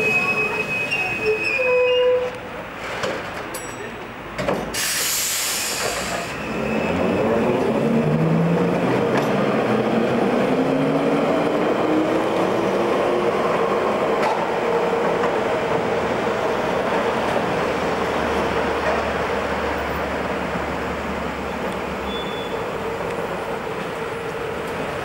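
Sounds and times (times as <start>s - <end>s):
tram wheels rumbling on rails: 0.0s - 25.0s
hiss burst: 4.7s - 6.4s.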